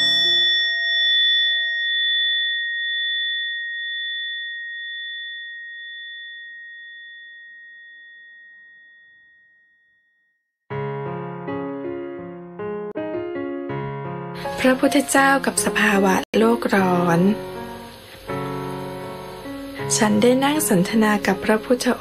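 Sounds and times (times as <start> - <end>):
bell ringing: 0.0 - 10.3
music: 10.7 - 22.0.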